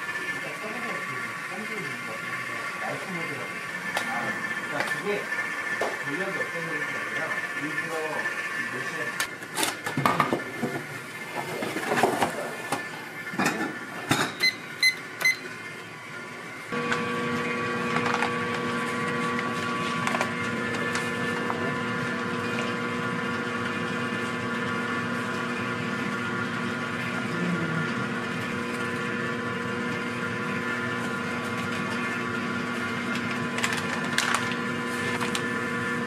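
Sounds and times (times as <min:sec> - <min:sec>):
machine hum: 0:00.0 - 0:36.0.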